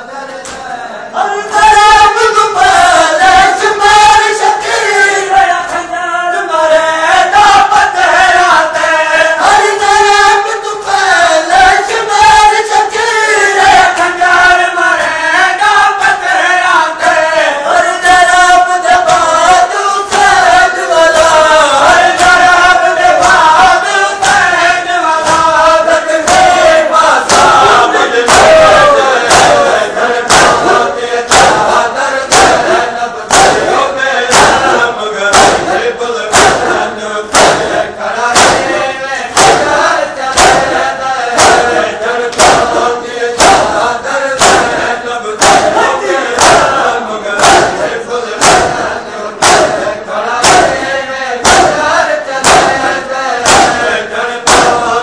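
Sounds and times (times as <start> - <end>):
crowd of men chanting: 0.0 - 55.0
hands slapping chests: 19.0 - 20.4, 22.1 - 23.6, 24.2 - 24.6, 25.2 - 25.6, 26.2 - 46.8, 47.4 - 55.0.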